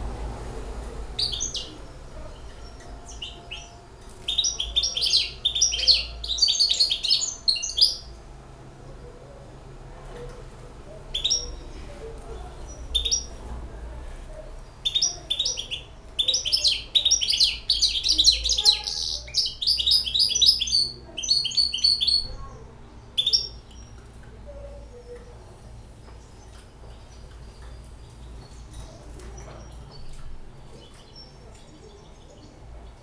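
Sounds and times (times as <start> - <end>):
finch chirping and singing: 1.2 - 8.1, 11.1 - 11.8, 12.5 - 13.4, 14.8 - 24.0, 24.9 - 33.0.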